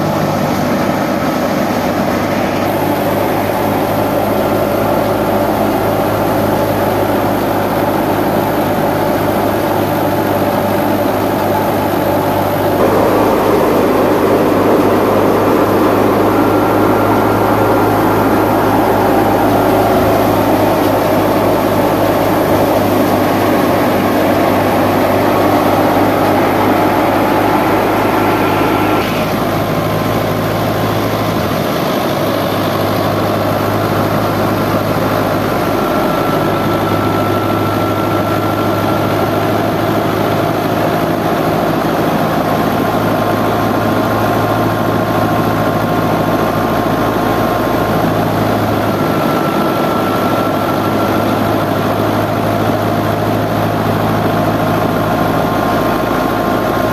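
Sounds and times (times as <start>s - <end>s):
tractor engine running: 0.0s - 56.9s
threshing machine whirring: 0.1s - 41.6s.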